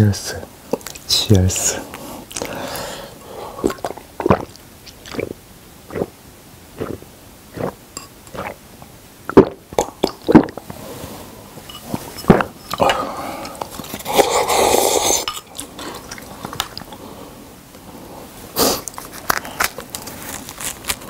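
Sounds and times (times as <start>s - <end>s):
person gulping a drink: 3.6s - 6.2s, 6.8s - 8.6s, 9.3s - 10.8s, 12.2s - 17.0s.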